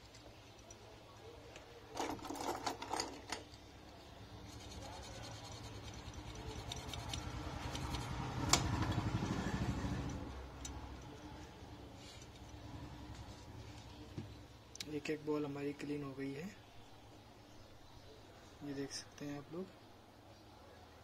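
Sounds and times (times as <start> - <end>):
toothbrush scrubbing a circuit board: 4.3 - 8.4.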